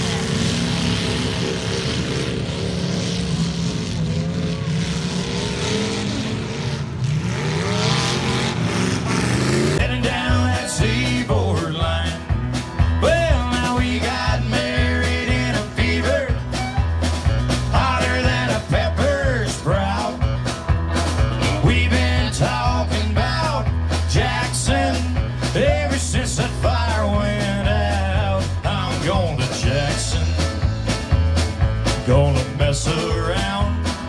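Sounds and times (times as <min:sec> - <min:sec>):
drums: 0:00.0 - 0:34.0
electric bass: 0:00.0 - 0:34.0
acoustic guitar: 0:09.4 - 0:34.0
electric guitar: 0:09.6 - 0:34.0.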